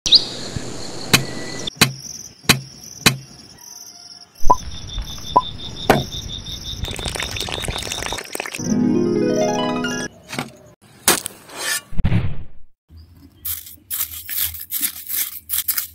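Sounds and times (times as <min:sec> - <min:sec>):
sharp knocks: 0:01.2 - 0:03.3
insects trilling: 0:01.7 - 0:07.8
water pouring into metal pot: 0:06.8 - 0:08.6.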